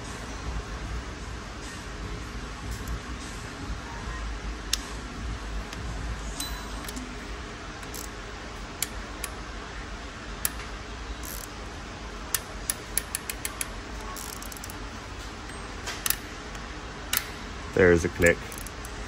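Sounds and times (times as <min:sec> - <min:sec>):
steady low hum: 0:00.0 - 0:19.0
torque wrench clicking: 0:07.8 - 0:08.2, 0:10.4 - 0:11.6, 0:12.3 - 0:14.8, 0:16.0 - 0:17.4, 0:18.4 - 0:19.0.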